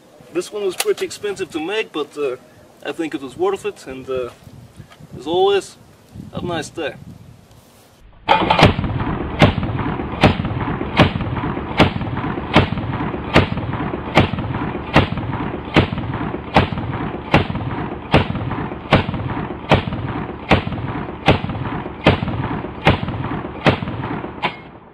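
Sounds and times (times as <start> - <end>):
automatic shotgun firing: 8.3 - 24.8.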